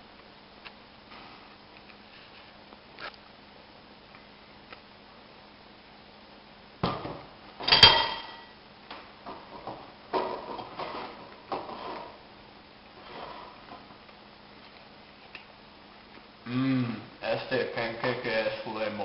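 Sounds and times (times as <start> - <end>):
metal fork striking ceramic plate: 7.7 - 8.4.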